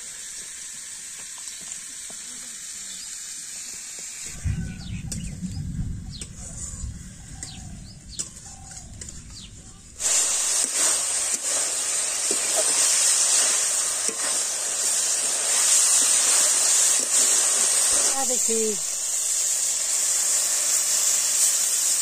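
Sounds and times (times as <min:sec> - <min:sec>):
vegetables sizzling in oil: 0:00.0 - 0:22.0
bird chirps: 0:04.3 - 0:09.8.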